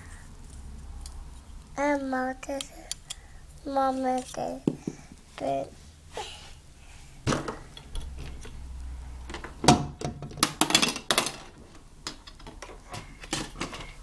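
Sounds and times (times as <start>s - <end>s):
plastic toy kitchen clattering: 9.4s - 14.0s.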